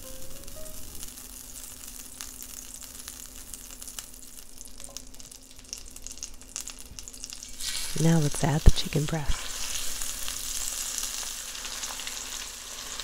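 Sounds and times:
butter sizzling in skillet: 0.0 - 13.0.

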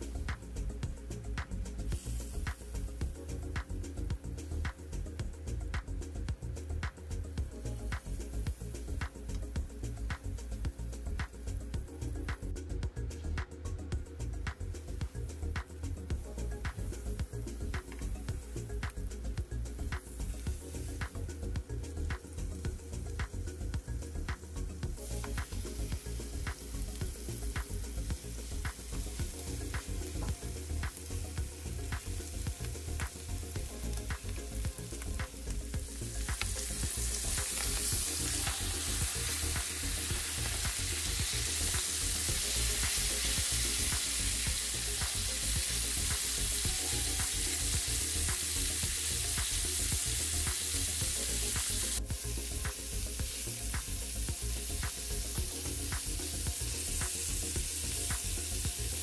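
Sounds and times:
steaks sizzling in butter: 0.0 - 5.3, 24.8 - 59.0
popping and crackling fat: 24.3 - 59.0.

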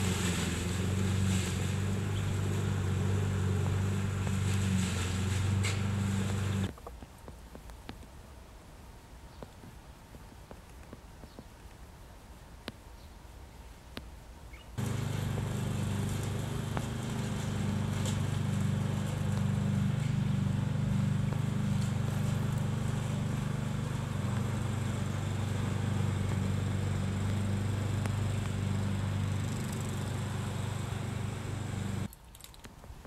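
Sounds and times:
engine humming: 0.0 - 6.8, 14.8 - 32.1.

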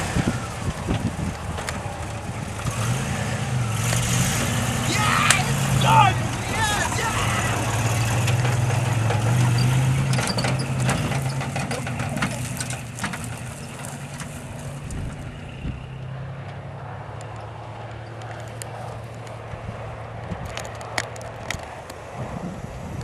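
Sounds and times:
car engine running: 0.0 - 19.6
clicks and crackles: 8.0 - 15.1, 18.1 - 19.4, 20.2 - 22.0.

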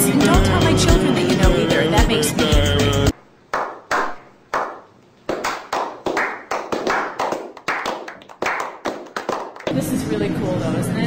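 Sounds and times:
hand clapping: 3.5 - 9.7.

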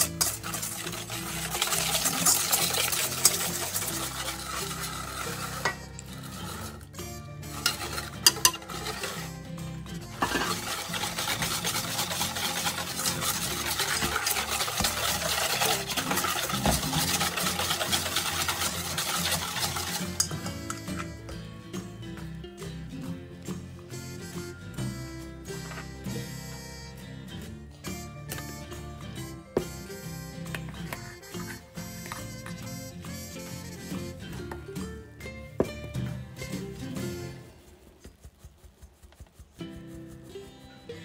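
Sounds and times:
wire whisk scraping a bowl: 0.0 - 21.4, 27.9 - 34.2.

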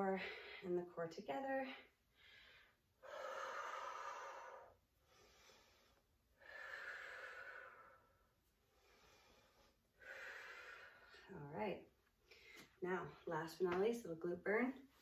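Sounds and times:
woman inhaling: 2.2 - 11.3.

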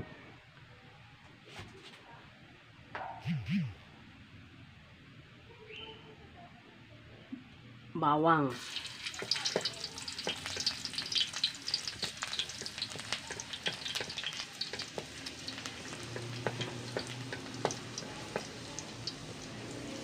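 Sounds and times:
garlic sizzling in hot oil: 8.5 - 20.0.

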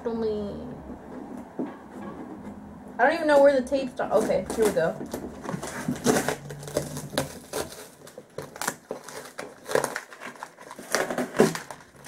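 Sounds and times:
paper and cardboard crinkling: 4.0 - 12.0.

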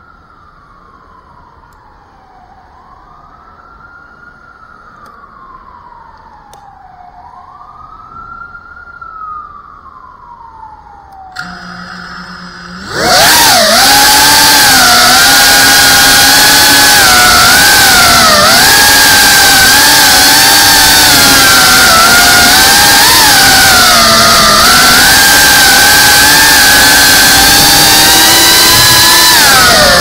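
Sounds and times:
distant siren wailing: 0.0 - 30.0
drone motors whining: 11.1 - 30.0.

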